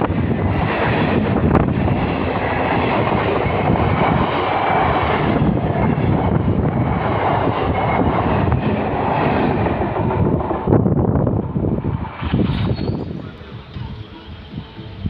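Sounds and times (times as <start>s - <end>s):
train passing at speed: 0.0s - 15.0s.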